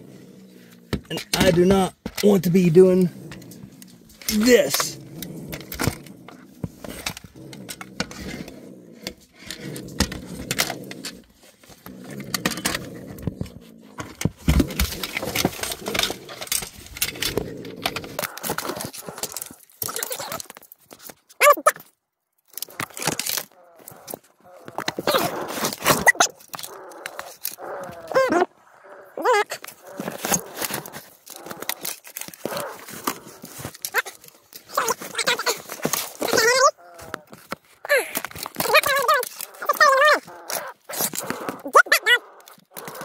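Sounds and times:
grabber pole clattering and scraping: 0.7 - 21.1.

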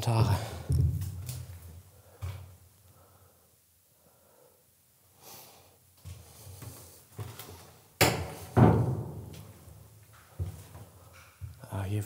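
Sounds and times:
soft low thumps: 0.2 - 1.2.

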